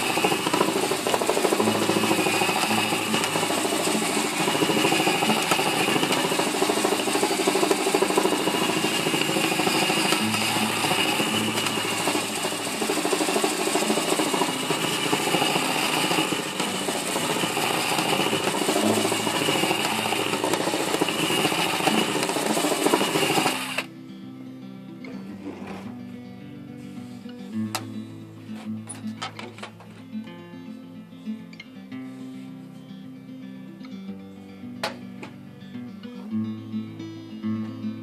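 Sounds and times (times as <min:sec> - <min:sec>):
drill motor whine: 0:00.0 - 0:23.9
acoustic guitar music: 0:00.0 - 0:38.0.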